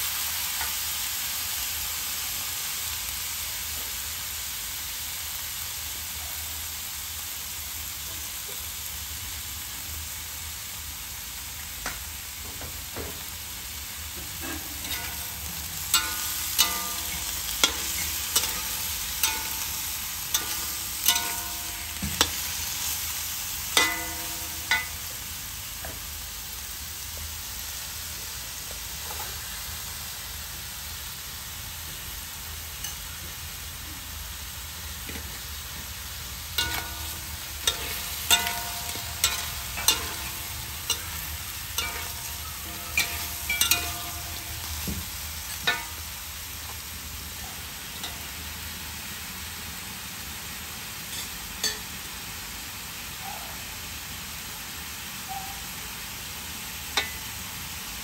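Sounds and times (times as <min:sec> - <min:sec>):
meat sizzling in oil: 0:00.0 - 0:58.0
spatula scraping wok: 0:14.3 - 0:25.3, 0:36.5 - 0:46.8
spatula clanging against wok: 0:14.4 - 0:23.1, 0:23.7 - 0:26.0, 0:36.6 - 0:46.8, 0:51.1 - 0:52.0, 0:57.0 - 0:57.3.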